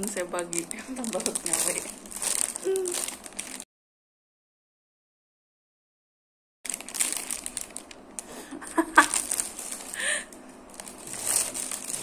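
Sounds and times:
plastic bag crinkling: 0.0 - 3.6, 6.7 - 12.0.

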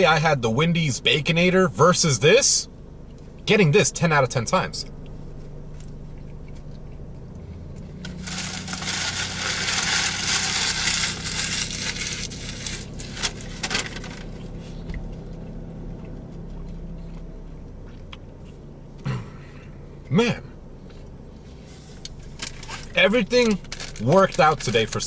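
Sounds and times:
steady low hum: 0.0 - 25.0
paper wrapper rustling: 8.0 - 14.4, 22.3 - 25.0.

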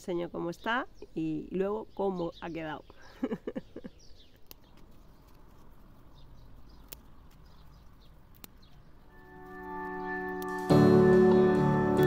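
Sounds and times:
soft clicks: 4.3 - 5.7, 6.7 - 8.8
soft music: 9.1 - 12.0.

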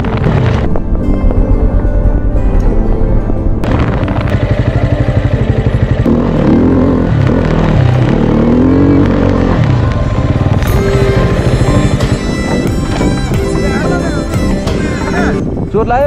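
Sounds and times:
dirt bike engine revving: 3.6 - 13.2.

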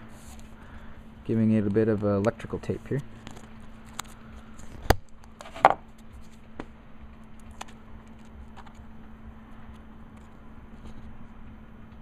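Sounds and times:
tape clicks and rustles: 3.2 - 6.7, 7.4 - 8.9.

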